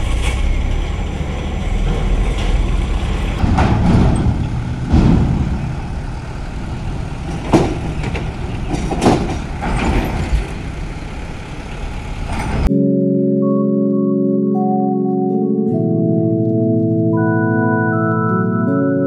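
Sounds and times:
clanks on steel ramp plates: 0.0 - 11.3
trucks driving: 0.0 - 12.7
steady music: 12.7 - 19.0.

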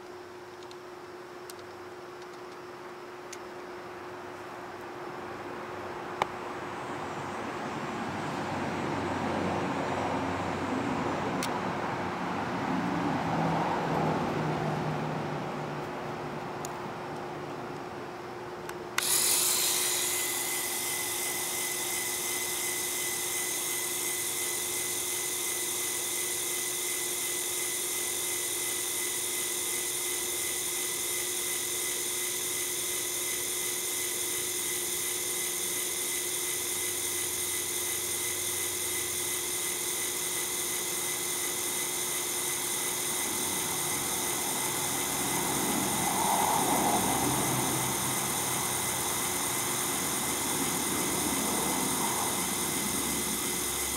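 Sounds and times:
plastic gears whirring: 19.0 - 45.1
small electric motor whining: 19.0 - 53.9.

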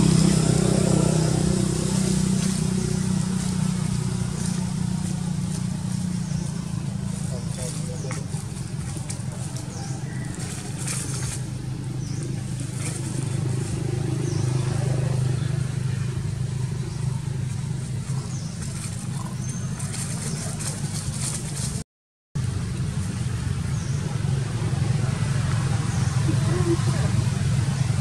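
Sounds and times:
dry leaves rustling: 0.0 - 21.8
steady low hum: 0.7 - 21.8.

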